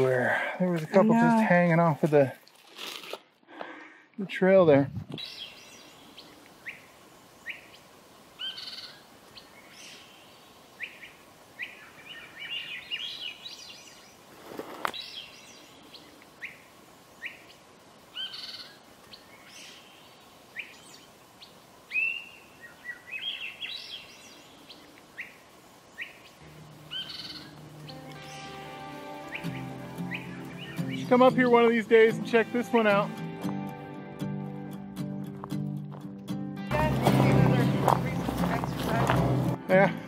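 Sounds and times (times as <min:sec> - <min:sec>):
birds chirping and warbling: 0:05.0 - 0:33.2
music: 0:26.4 - 0:40.0.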